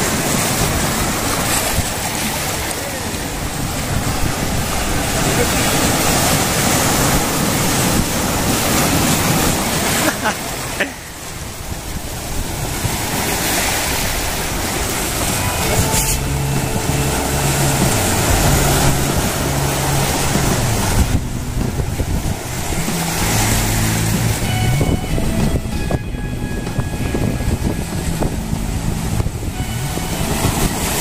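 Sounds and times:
wind on microphone: 0.0s - 10.0s, 11.3s - 31.0s
waves breaking on boulders: 0.0s - 24.6s, 27.6s - 31.0s
low hum: 14.7s - 31.0s.

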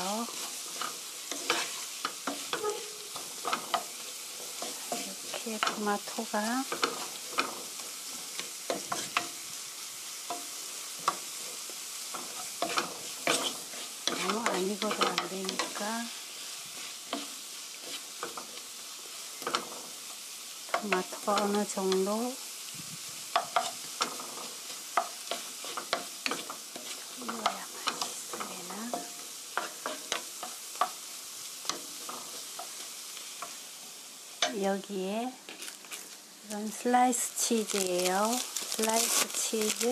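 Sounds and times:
vegetables sizzling in frying pan: 0.0s - 39.9s
wooden spatula scraping pan: 0.2s - 9.3s, 12.2s - 15.9s, 23.6s - 30.3s.

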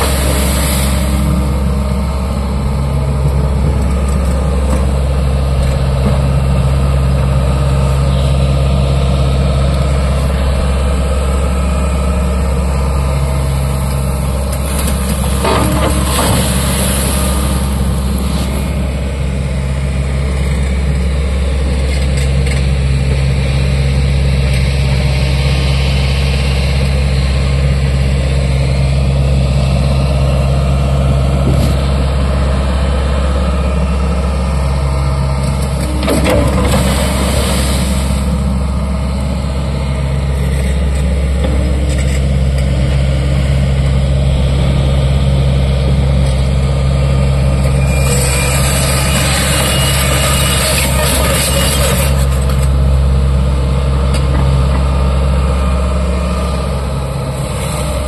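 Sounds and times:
water splashing: 0.0s - 1.6s, 36.4s - 38.5s
loud rushing noise: 0.0s - 2.5s, 36.3s - 38.8s
excavator diesel engine drone: 0.0s - 58.0s.

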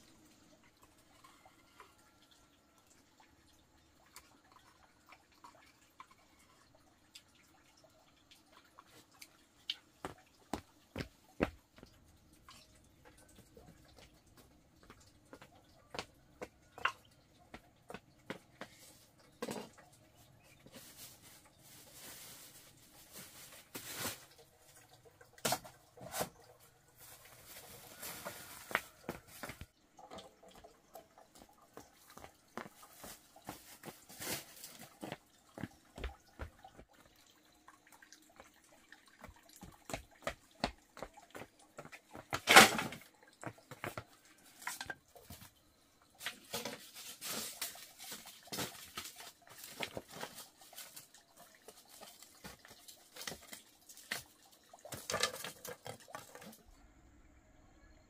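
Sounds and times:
rustling: 20.4s - 24.8s, 26.0s - 29.7s, 46.2s - 51.1s
footsteps: 31.4s - 37.1s.

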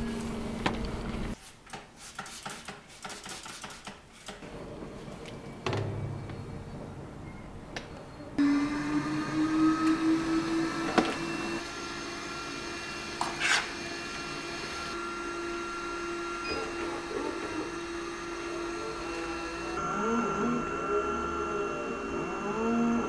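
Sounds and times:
electric motor humming: 8.4s - 23.0s.

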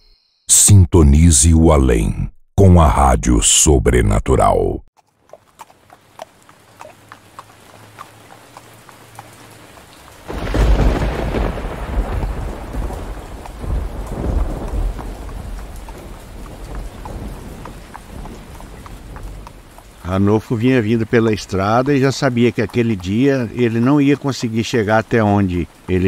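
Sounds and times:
water drips: 5.0s - 26.0s
steady rain: 5.1s - 26.0s
thunder rumbling: 10.2s - 22.0s.

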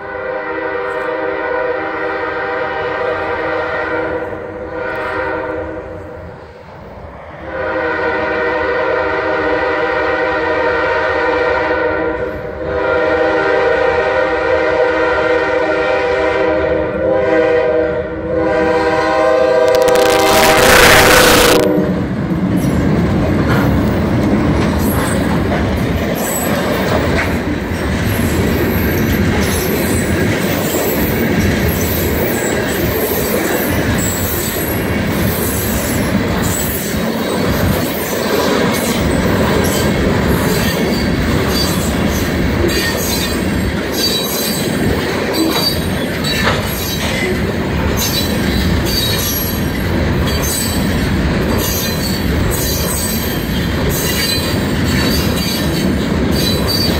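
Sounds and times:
diesel locomotives passing: 0.0s - 56.9s
wheels clacking over rail joints: 22.5s - 32.7s, 33.8s - 56.9s.

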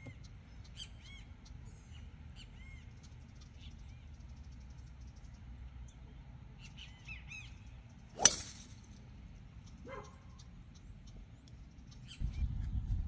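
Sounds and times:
golf club striking ball: 8.2s - 8.8s
birds chirping: 9.3s - 12.6s.

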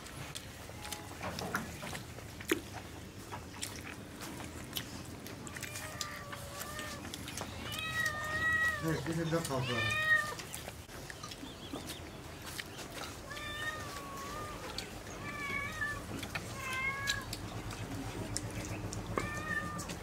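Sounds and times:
cat meowing: 5.4s - 10.5s, 13.2s - 17.3s, 19.2s - 20.0s.

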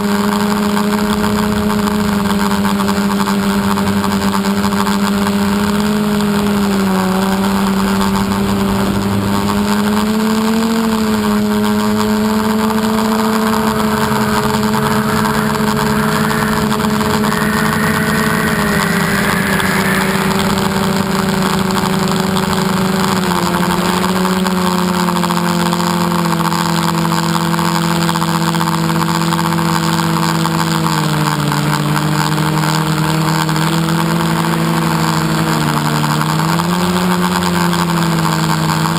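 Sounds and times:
drone propellers humming: 0.0s - 38.9s
rush of air noise: 13.1s - 23.0s.

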